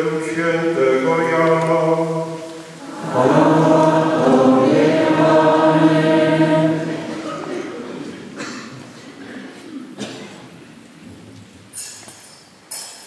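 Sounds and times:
priest singing: 0.0 - 8.3
choir and congregation chanting: 0.0 - 8.4.

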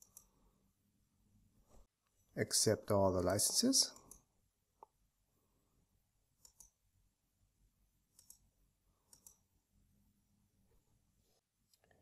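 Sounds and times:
computer mouse clicks: 0.0 - 0.4, 6.4 - 6.8, 8.1 - 9.5.

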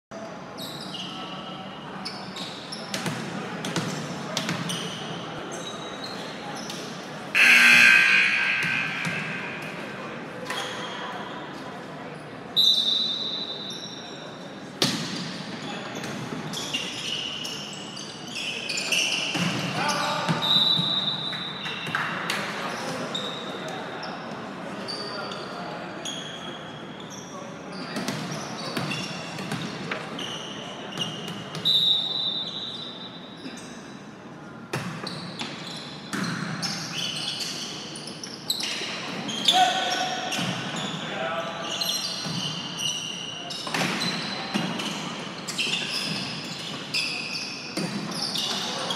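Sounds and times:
voices echoing in a gym: 0.1 - 48.9
sneaker squeaks on hardwood: 2.0 - 11.2, 12.6 - 14.2, 14.8 - 21.9, 24.9 - 33.9, 34.8 - 48.9
referee's whistle: 7.4 - 9.7, 12.6 - 14.0, 20.4 - 21.8, 31.6 - 33.1
referee's whistle blast: 7.4 - 9.8
volleyball being struck: 7.4 - 10.0.

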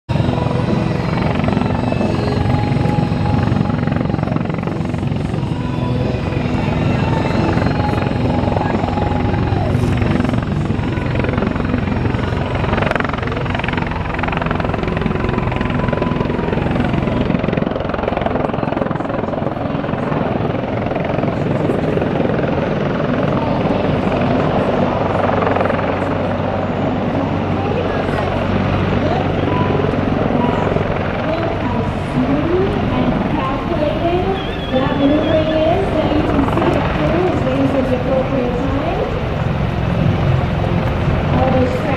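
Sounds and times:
helicopter rotor chop: 0.1 - 41.9
turbine whine: 0.1 - 41.9.

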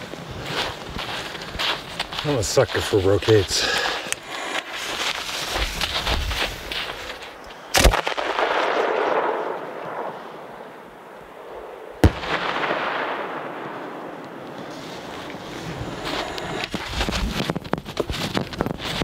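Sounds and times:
firework bangs: 7.7 - 10.3, 11.6 - 14.1.

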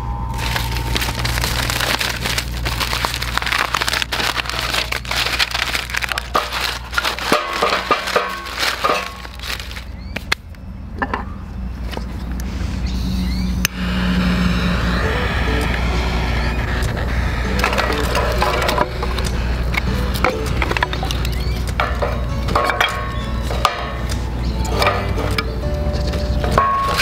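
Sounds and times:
wood shavings rustling and crackling: 0.3 - 10.4, 17.4 - 23.6, 26.1 - 27.0.

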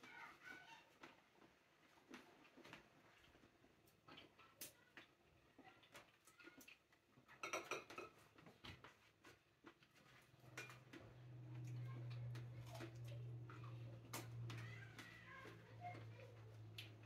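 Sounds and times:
clicks and taps of handling dishes: 5.8 - 17.0.

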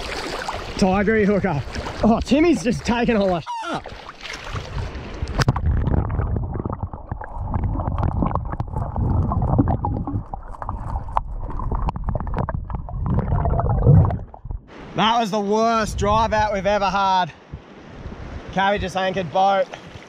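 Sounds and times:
underwater churning rumble: 4.6 - 14.7.

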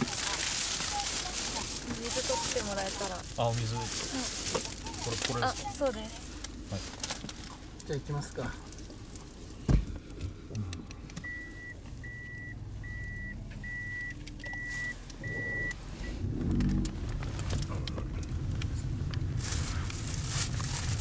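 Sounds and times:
car engine running: 0.0 - 21.0
car warning beeper: 11.2 - 16.2.

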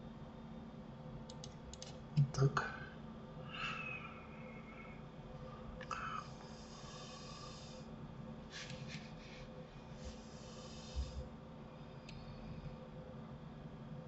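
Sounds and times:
steady low hum: 0.0 - 14.0
soft clicks: 1.3 - 2.0
breathing close to microphone: 5.9 - 7.9, 8.5 - 11.3.

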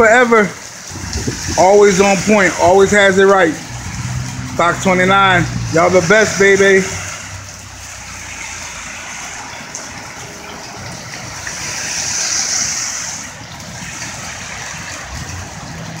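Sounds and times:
heavy rain pouring: 0.0 - 16.0
car tyres hissing on wet road: 0.9 - 16.0.

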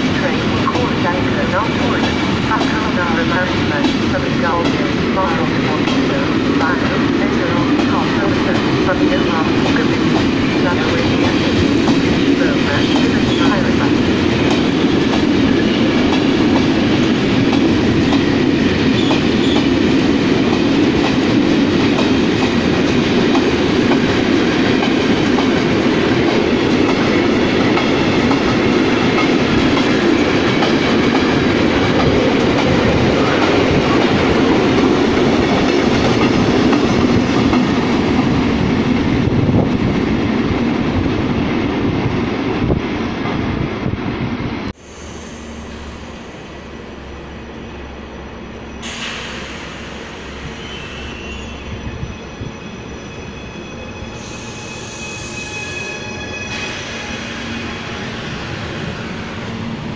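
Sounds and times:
freight train rumbling: 0.0 - 59.9.

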